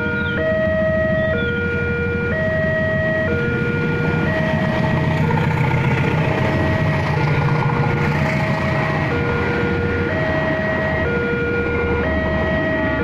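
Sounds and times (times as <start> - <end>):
locomotive engine rumble: 0.0 - 13.0
train wheel noise: 3.5 - 10.6.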